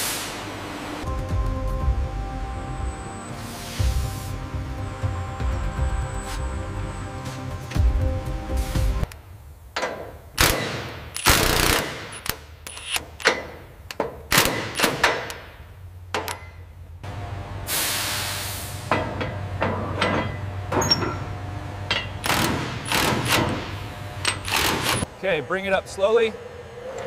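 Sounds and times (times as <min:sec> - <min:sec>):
hiss: 0:00.0 - 0:00.5, 0:17.7 - 0:18.9
metallic clanks and knocks: 0:09.8 - 0:10.2, 0:16.1 - 0:16.8, 0:18.9 - 0:25.0.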